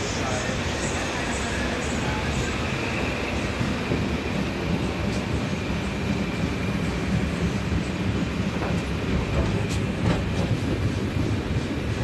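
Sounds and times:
train wheels rumbling on rail: 0:00.0 - 0:12.0.

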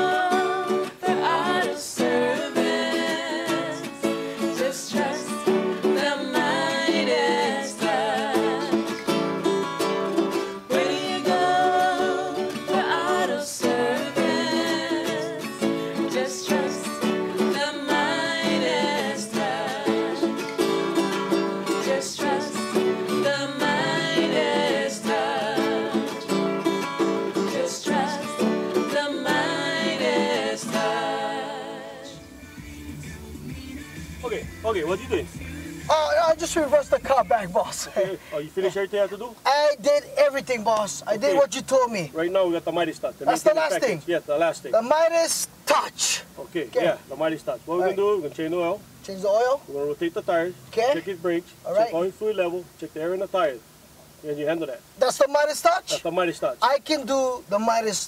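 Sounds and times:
woman singing: 0:00.0 - 0:09.5, 0:10.4 - 0:34.4
ukulele strumming: 0:00.0 - 0:37.9
acoustic guitar strumming: 0:00.0 - 0:38.8.

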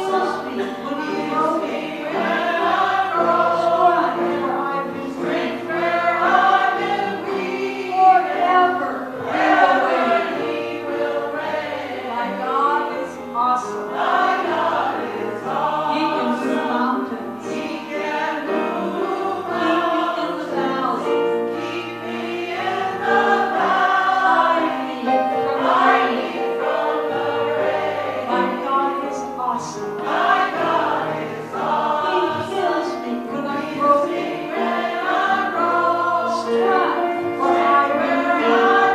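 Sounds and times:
gospel choir singing: 0:00.0 - 0:38.9.

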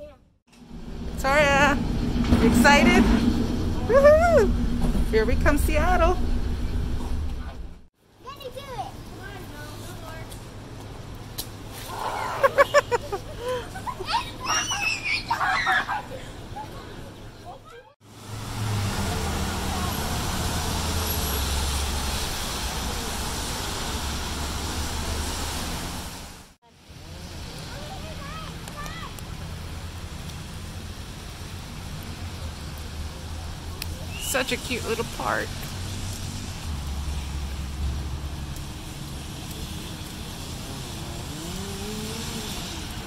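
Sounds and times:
engine note rising: 0:00.5 - 0:07.9, 0:18.2 - 0:26.2
vehicles driving past: 0:00.5 - 0:14.6, 0:15.6 - 0:43.0
low traffic rumble: 0:00.5 - 0:43.0
tyres hissing on wet road: 0:18.0 - 0:43.0.

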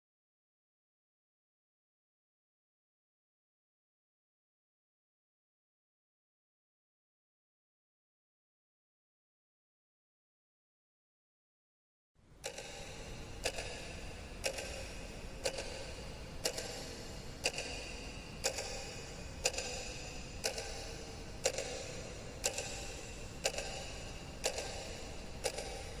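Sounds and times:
faint low hum: 0:12.2 - 0:26.0
wall clock ticking: 0:12.4 - 0:26.0.

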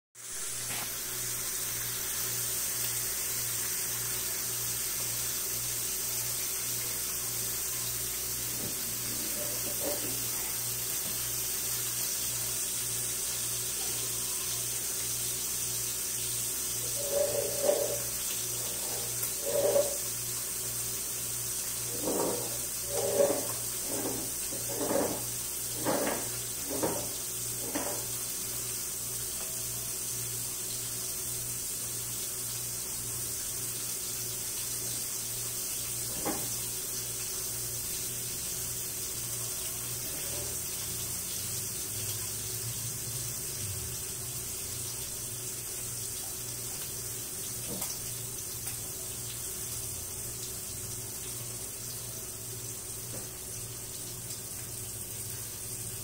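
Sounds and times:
rushing hiss: 0:13.6 - 0:20.3.

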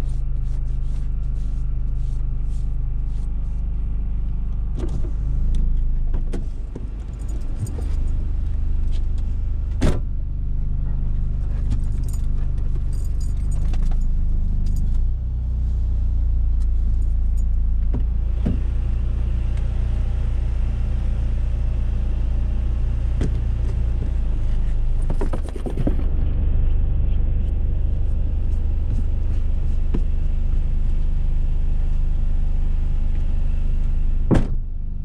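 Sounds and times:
car engine and road rumble: 0:00.0 - 0:35.0.

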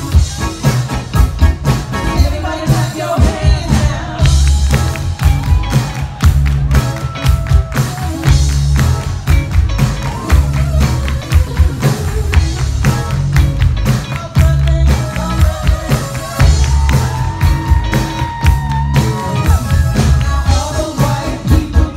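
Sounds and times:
live rock band playing: 0:00.0 - 0:21.9
woman singing: 0:02.1 - 0:04.8, 0:10.2 - 0:12.9, 0:14.2 - 0:21.9.

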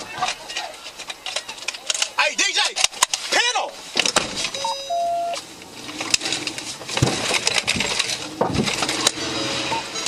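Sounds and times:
metal and glass crunching: 0:05.3 - 0:09.4.

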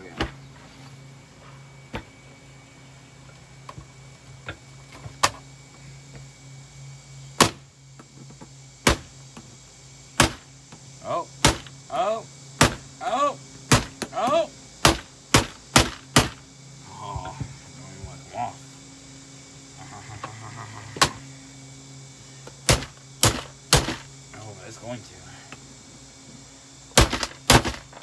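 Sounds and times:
steady low hum: 0:00.0 - 0:28.0
sharp blows on a vacuum cleaner: 0:12.6 - 0:16.4, 0:22.6 - 0:24.1, 0:26.9 - 0:28.0.

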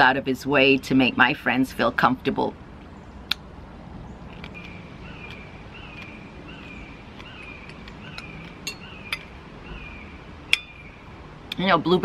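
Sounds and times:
bird calling: 0:04.1 - 0:11.2.

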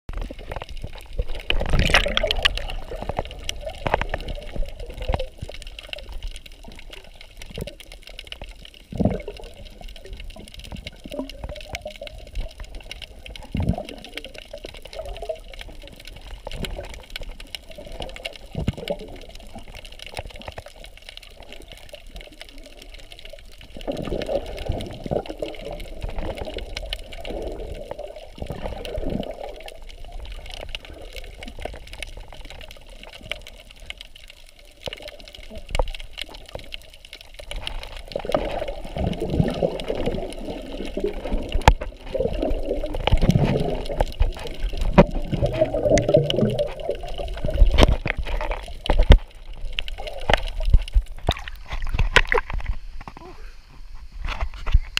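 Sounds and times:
muffled underwater water swishing: 0:00.1 - 0:54.9
dull thumps underwater: 0:01.2 - 0:05.3, 0:38.2 - 0:53.2.

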